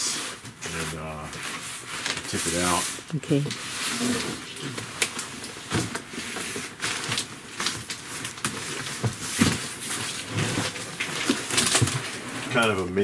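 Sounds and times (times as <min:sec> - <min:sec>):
cardboard rubbing and scraping: 0:00.1 - 0:04.9, 0:08.6 - 0:13.0.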